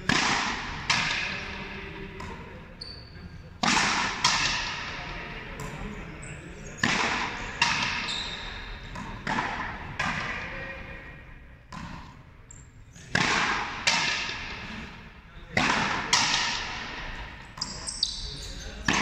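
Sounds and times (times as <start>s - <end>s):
ball cracking off wall with echo: 0.0s - 1.6s, 3.6s - 5.0s, 6.8s - 8.1s, 13.1s - 14.7s, 15.5s - 17.8s, 18.8s - 19.0s.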